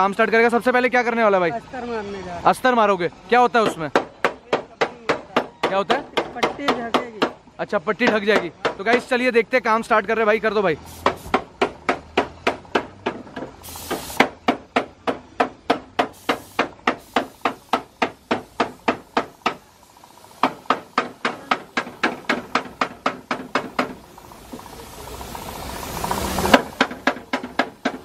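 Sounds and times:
rhythmic hammering: 3.4s - 9.4s, 11.0s - 24.6s, 26.5s - 28.0s
spray gun air hiss: 10.8s - 11.5s, 13.6s - 14.6s, 15.9s - 28.0s.

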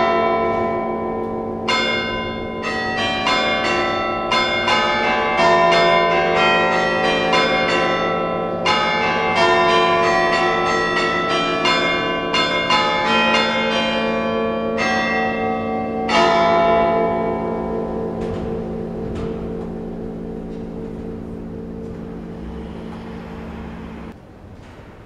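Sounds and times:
church bells playing melody: 0.0s - 24.2s.

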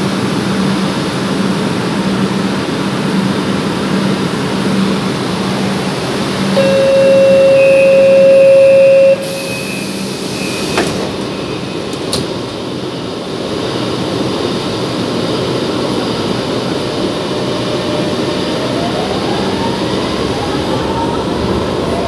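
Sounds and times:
air conditioning rushing: 0.0s - 22.0s
train running noise: 0.0s - 22.0s
faint traction motor whine: 6.5s - 12.1s
sliding doors shutting knocks: 10.5s - 12.6s.

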